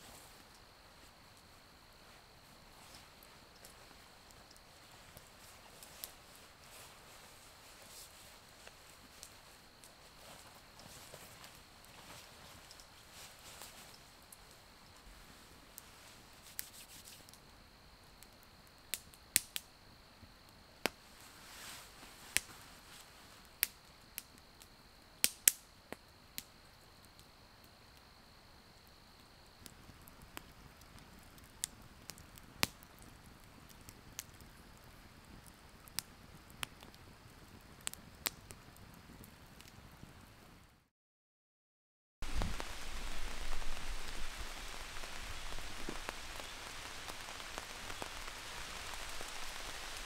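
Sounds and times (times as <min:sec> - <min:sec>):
campfire crackling: 0:00.0 - 0:40.8, 0:42.2 - 0:50.0
sharp pops of burning wood: 0:18.1 - 0:19.7, 0:20.8 - 0:21.3, 0:22.3 - 0:22.6, 0:23.4 - 0:27.0, 0:29.2 - 0:40.2, 0:42.2 - 0:50.0.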